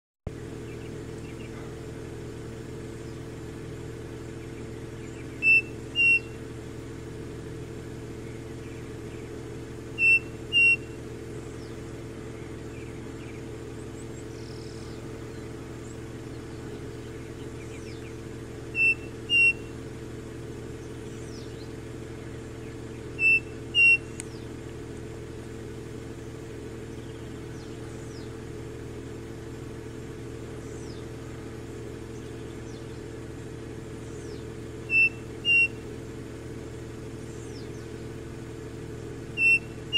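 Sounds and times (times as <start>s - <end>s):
steady low hum: 0.3s - 39.9s
bird whistling two-note song: 5.4s - 6.4s, 10.0s - 11.0s, 18.8s - 19.7s, 23.2s - 24.2s, 34.9s - 35.8s, 39.4s - 39.8s.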